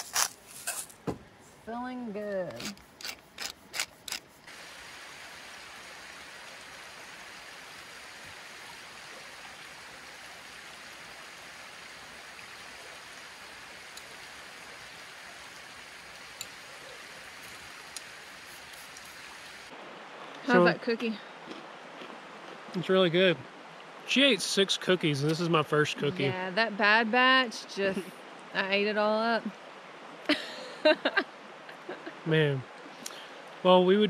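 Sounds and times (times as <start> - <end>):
creek water running: 0.0 - 34.0
pepper mill grinding: 2.5 - 4.2.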